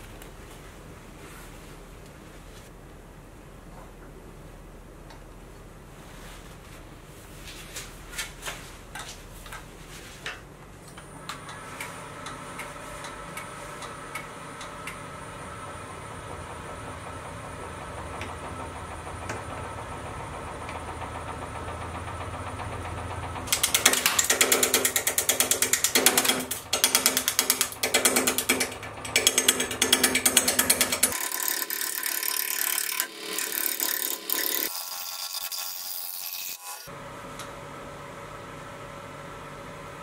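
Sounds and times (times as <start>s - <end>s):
wood lathe running: 12.1s - 36.9s.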